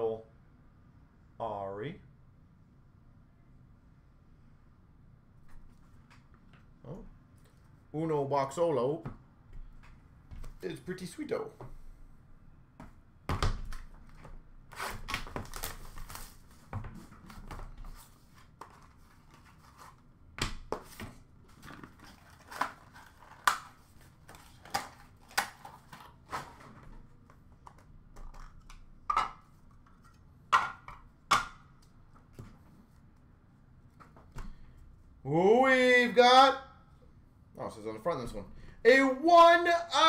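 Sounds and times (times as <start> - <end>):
card and packaging rustling: 14.0 - 20.1, 20.7 - 28.7.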